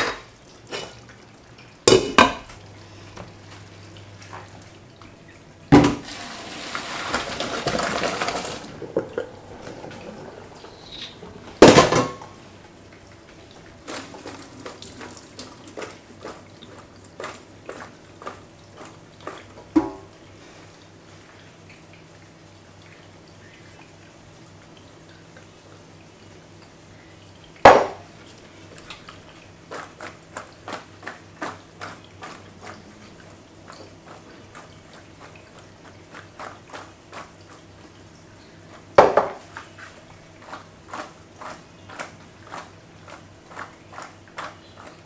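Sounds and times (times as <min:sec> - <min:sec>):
water pouring into colander: 0:05.8 - 0:19.7.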